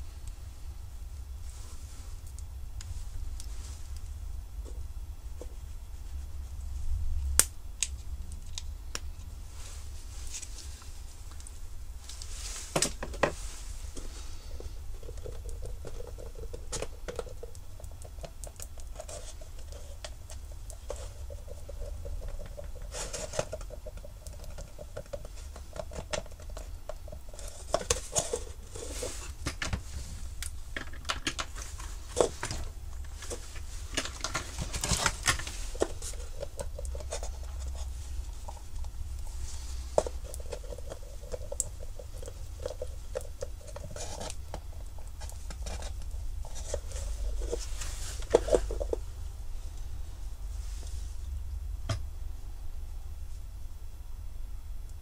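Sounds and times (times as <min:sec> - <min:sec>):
low steady hum: 0:00.0 - 0:55.0.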